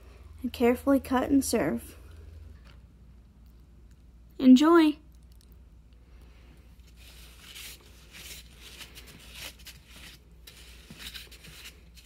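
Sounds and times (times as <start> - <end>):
faint scratchy rustling and scraping: 6.7 - 12.0.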